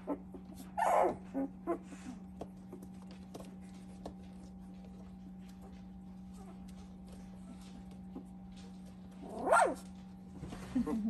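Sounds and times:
puppies whimpering and squealing: 0.0 - 3.1.

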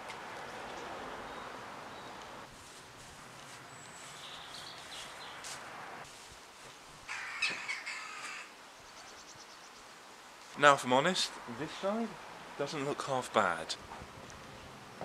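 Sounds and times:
harsh bird-like cawing call: 7.1 - 8.6.

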